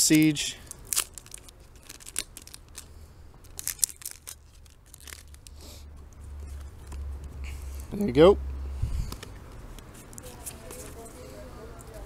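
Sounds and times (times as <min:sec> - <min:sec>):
foil wrapper tearing and crinkling: 0:00.1 - 0:05.6.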